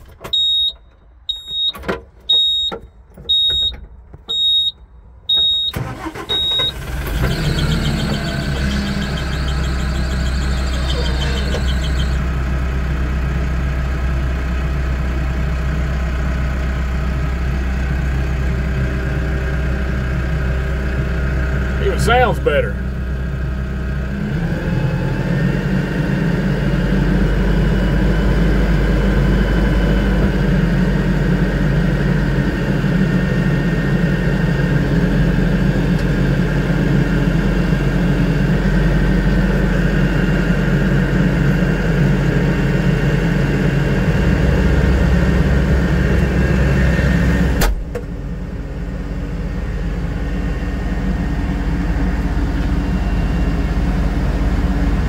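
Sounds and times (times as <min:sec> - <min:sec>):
tractor diesel engine running: 0:00.0 - 0:55.0
cab door shutting: 0:47.5 - 0:48.1.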